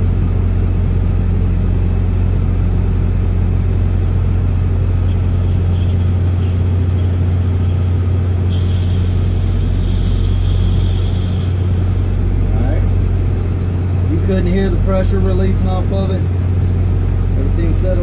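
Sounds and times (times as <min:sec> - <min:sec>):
diesel truck engine idling: 0:00.0 - 0:18.0
loud air hiss: 0:05.0 - 0:14.2.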